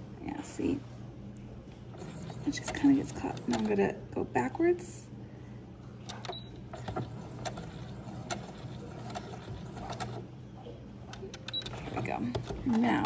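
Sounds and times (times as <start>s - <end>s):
sewing machine hum: 1.9s - 3.9s, 6.7s - 10.3s, 11.1s - 13.0s
sewing machine needle clicks: 2.2s - 3.8s.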